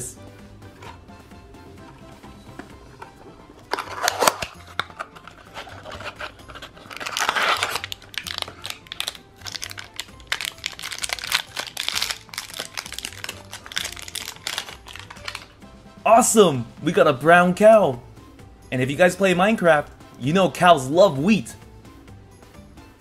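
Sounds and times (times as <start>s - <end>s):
foil wrapper crinkling and tearing: 3.7s - 15.5s.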